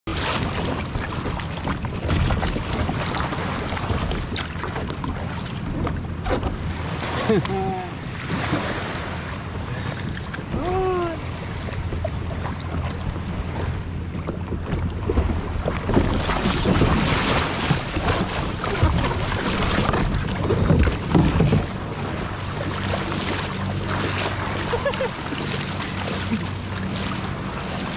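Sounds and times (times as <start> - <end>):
water lapping on kayak: 0.0 - 27.9
knocks and scrapes on kayak: 0.1 - 7.2, 12.8 - 22.2
wind on microphone: 0.1 - 24.8.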